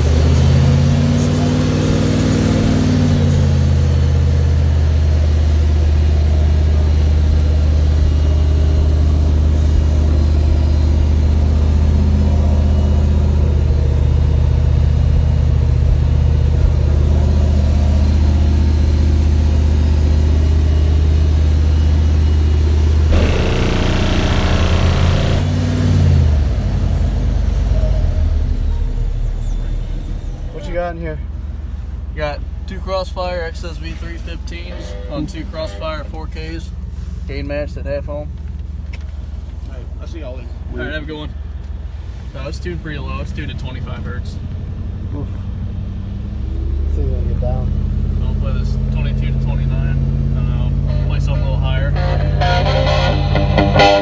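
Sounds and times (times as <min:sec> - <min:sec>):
deep bass tone from subwoofers: 0:00.0 - 0:32.7, 0:44.3 - 0:54.0
burst of noise: 0:23.1 - 0:26.8.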